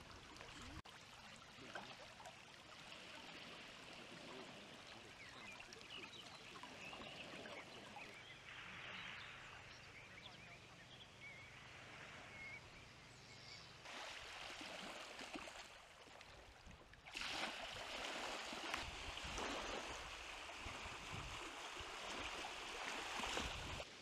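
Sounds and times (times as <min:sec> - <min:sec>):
creek water rushing: 0:17.1 - 0:24.0.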